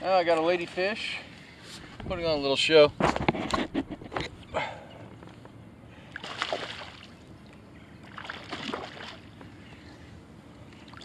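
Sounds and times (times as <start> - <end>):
fish splashing in water: 6.1 - 7.2, 8.0 - 9.4.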